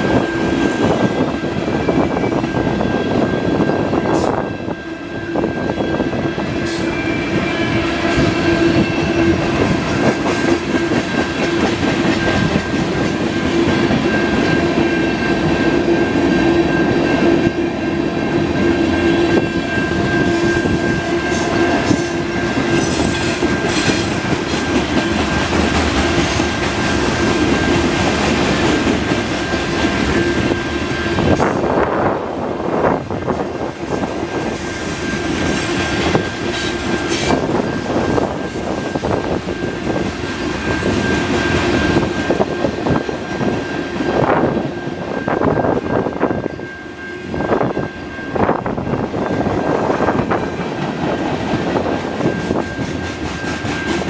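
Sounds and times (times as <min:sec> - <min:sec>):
steady ringing note: 0:00.0 - 0:31.4
freight train wheels clattering: 0:00.0 - 0:54.0.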